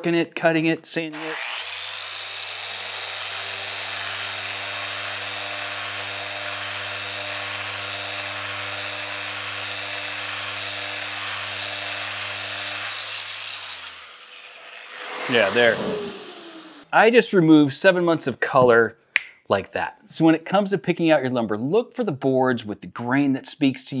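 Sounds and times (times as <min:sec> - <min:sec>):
orbital sander on wood: 0:01.1 - 0:16.9.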